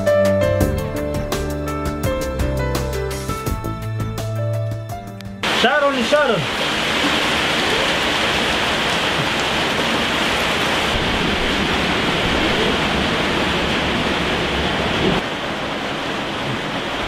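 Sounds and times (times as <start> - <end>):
loud steady hiss: 5.4 - 9.0.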